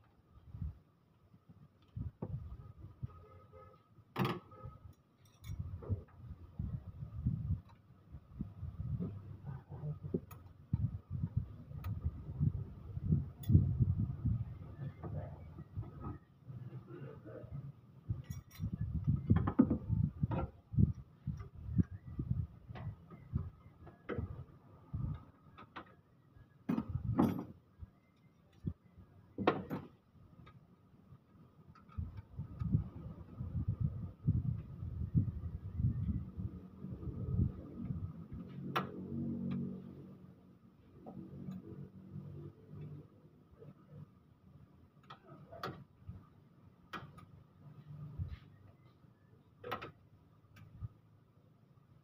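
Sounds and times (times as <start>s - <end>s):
faint metal clicks and knocks: 4.9s - 6.2s, 18.1s - 22.0s, 29.4s - 32.8s, 46.9s - 47.6s
hand tools clinking on metal: 5.2s - 5.6s, 18.2s - 18.7s.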